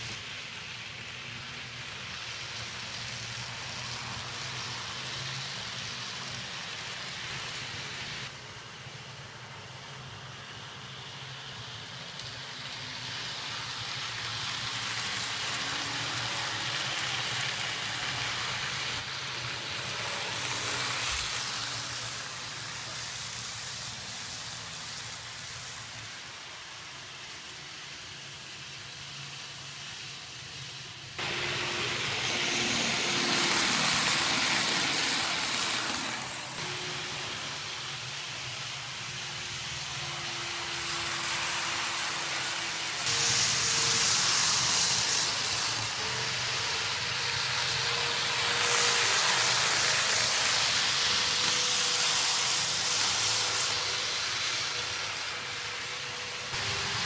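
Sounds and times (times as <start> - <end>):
model train wheels rattling: 31.9 - 36.6, 39.9 - 57.0.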